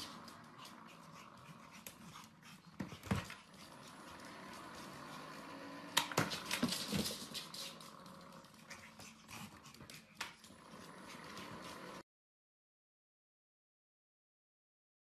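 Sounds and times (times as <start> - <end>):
dog moving on hard floor: 2.8 - 5.4, 6.0 - 10.6.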